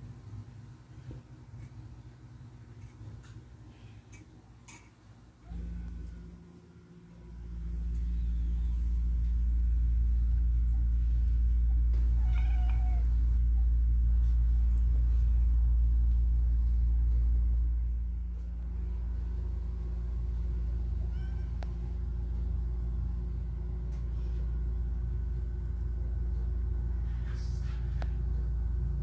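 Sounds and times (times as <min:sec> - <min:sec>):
cat meow: 0:12.2 - 0:13.1, 0:21.1 - 0:21.7.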